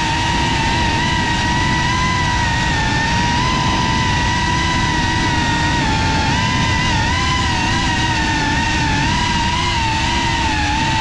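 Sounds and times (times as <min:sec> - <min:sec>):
low rumbling noise: 0:00.0 - 0:11.0
quadcopter motors whining: 0:00.0 - 0:11.0.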